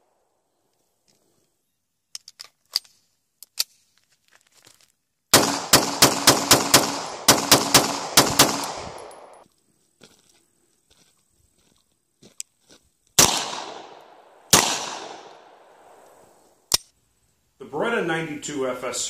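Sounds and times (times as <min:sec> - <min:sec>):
rapid pistol shots with echo: 0:05.3 - 0:09.4, 0:13.2 - 0:16.0
pistol metallic clicks: 0:16.0 - 0:17.0.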